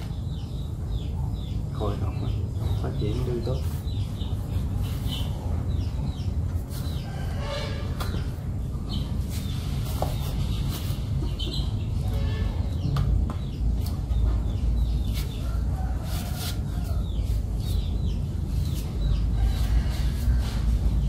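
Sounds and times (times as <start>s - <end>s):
chickens clucking: 4.6s - 20.6s.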